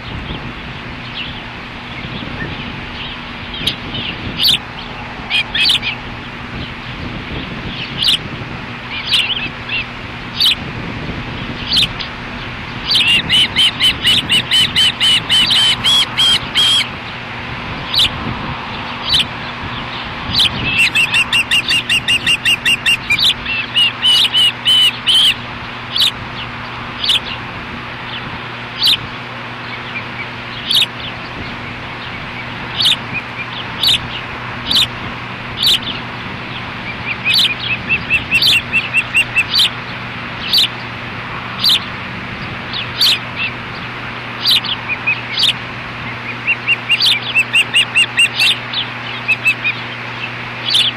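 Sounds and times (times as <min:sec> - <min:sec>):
osprey high chirps: 0:12.8 - 0:16.9, 0:20.3 - 0:26.2, 0:36.9 - 0:39.8, 0:46.2 - 0:50.0
rapid whistled bird notes: 0:12.9 - 0:16.9, 0:20.3 - 0:26.2, 0:46.2 - 0:50.0.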